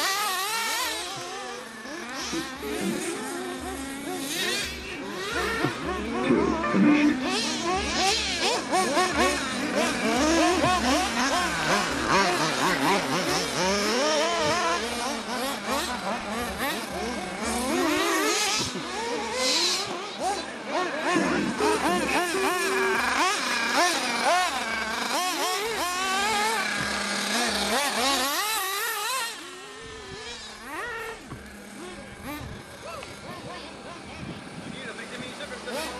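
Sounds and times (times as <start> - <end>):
rc car engines whining: 0.0 - 35.9.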